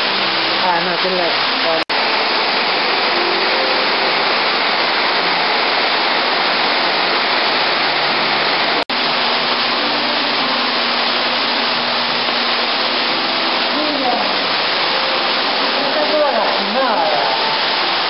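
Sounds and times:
loud rushing noise: 1.7 - 16.3.

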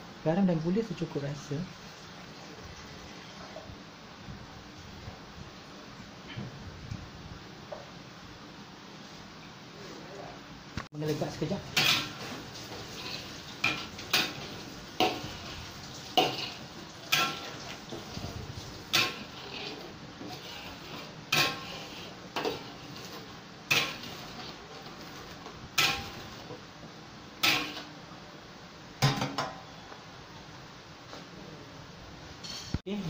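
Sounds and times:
sauce sizzling and bubbling: 1.7 - 4.2, 11.0 - 29.0.

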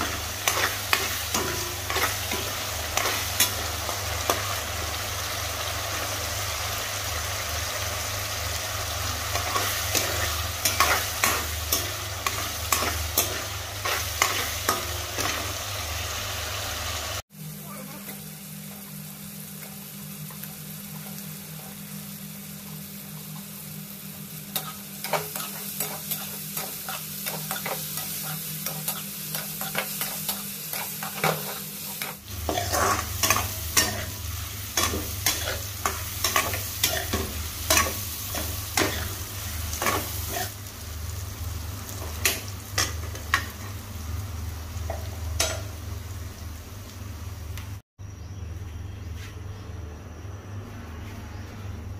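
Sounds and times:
food sizzling in a frying pan: 0.0 - 47.8
metal spoon scraping a pan: 24.6 - 34.2.

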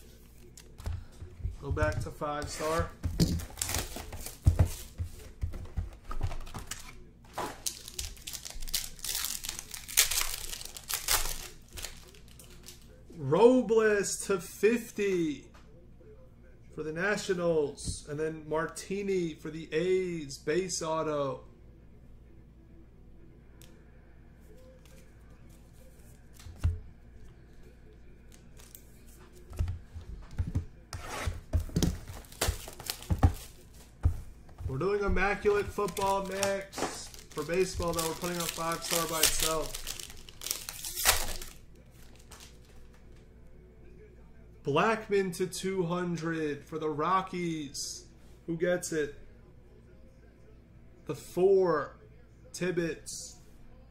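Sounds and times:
plastic wrap crinkling and tearing: 2.6 - 4.8, 6.5 - 12.9, 31.7 - 33.6, 35.2 - 42.8.

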